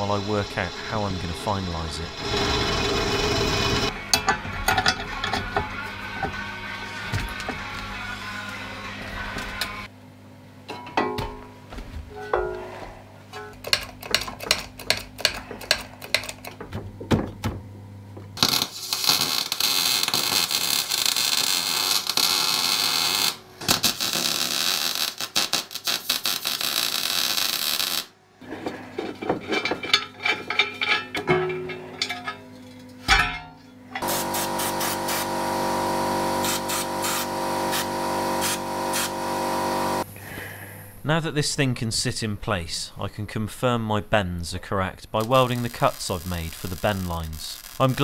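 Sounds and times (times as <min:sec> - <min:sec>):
steady multi-pitched hum: 0:00.0 - 0:24.2, 0:28.1 - 0:48.0
welding arc crackling: 0:18.4 - 0:28.1, 0:34.0 - 0:40.0, 0:45.2 - 0:48.0.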